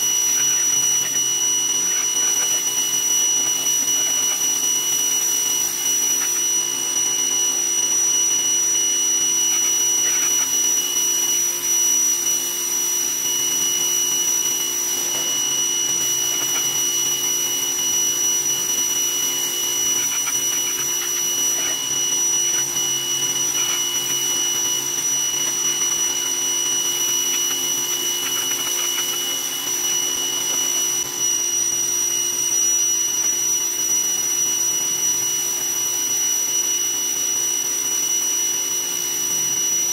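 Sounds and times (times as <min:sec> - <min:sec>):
pressure washer motor whining: 0:00.0 - 0:39.9
water jet hissing: 0:13.1 - 0:31.1.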